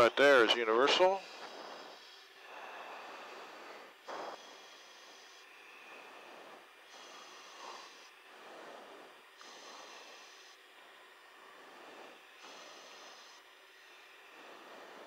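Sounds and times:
breathing over intercom: 0:00.0 - 0:10.6
steady hiss: 0:00.0 - 0:15.0.

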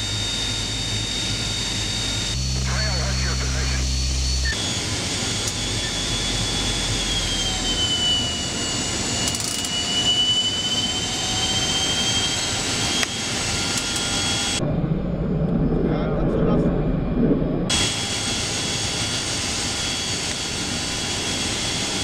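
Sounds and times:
deep engine rumble: 0:00.0 - 0:08.9, 0:13.3 - 0:20.6
turboprop engines droning and whining: 0:00.0 - 0:22.0.

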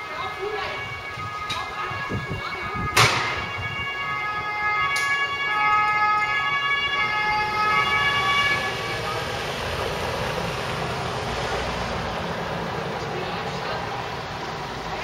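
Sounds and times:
two-tone siren: 0:00.0 - 0:10.9
vehicle noise rushing: 0:00.7 - 0:15.0.

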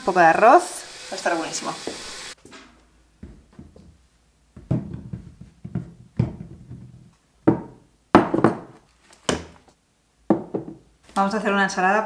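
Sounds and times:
fruit thudding on wooden table: 0:04.6 - 0:09.6, 0:10.3 - 0:10.8.

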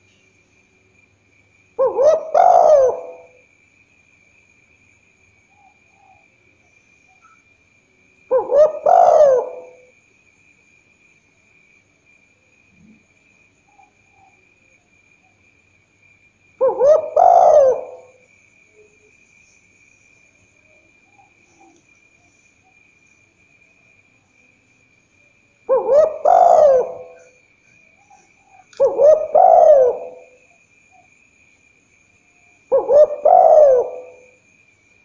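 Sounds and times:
dove cooing: 0:01.8 - 0:03.4, 0:08.3 - 0:09.9, 0:16.6 - 0:18.2, 0:25.7 - 0:27.4, 0:28.0 - 0:30.5, 0:32.7 - 0:34.4.

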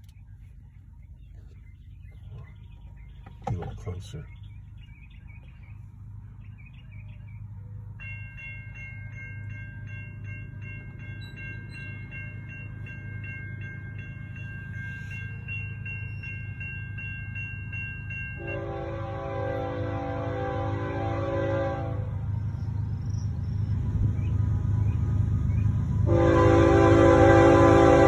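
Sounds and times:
low train rumble: 0:00.0 - 0:28.0
crossing warning bell ringing: 0:06.3 - 0:28.0
locomotive horn: 0:18.4 - 0:22.3, 0:26.0 - 0:28.0.

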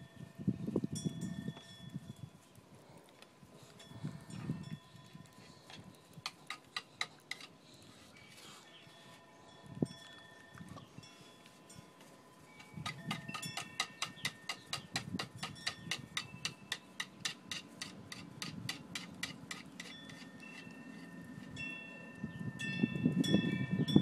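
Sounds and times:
wind chimes ringing: 0:00.0 - 0:02.5, 0:03.8 - 0:05.7, 0:08.2 - 0:17.2, 0:19.8 - 0:24.0.

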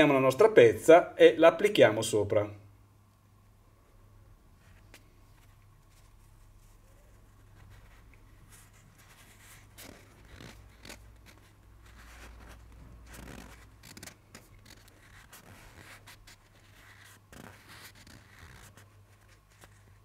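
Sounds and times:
fingers rubbing rubber patch: 0:06.8 - 0:18.9.

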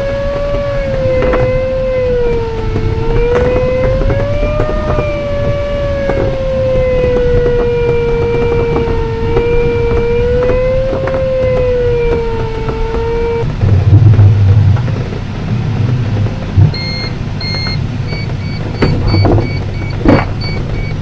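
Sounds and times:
airflow noise: 0:00.0 - 0:21.0
variometer audio tone: 0:00.0 - 0:21.0
wheel rolling on grass: 0:00.0 - 0:21.0
wheel touchdown thump: 0:00.0 - 0:21.0
short high electronic beeps: 0:16.8 - 0:21.0.

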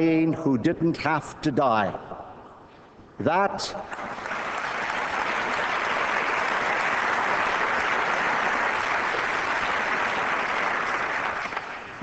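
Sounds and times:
large audience applauding: 0:03.9 - 0:12.0.

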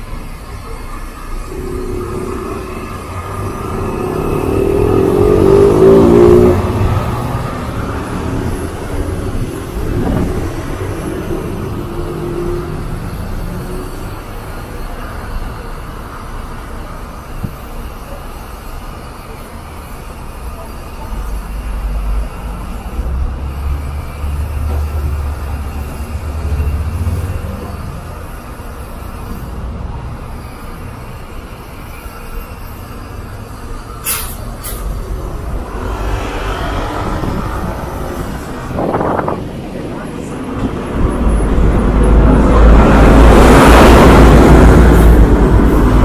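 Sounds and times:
bus engine idling: 0:00.0 - 0:05.4, 0:29.9 - 0:46.0
bus passing close: 0:00.0 - 0:46.0
voices of waiting passengers: 0:00.0 - 0:46.0.

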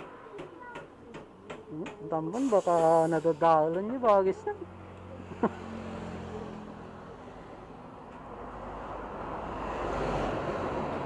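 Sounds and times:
vehicle passing on road: 0:03.1 - 0:11.0.

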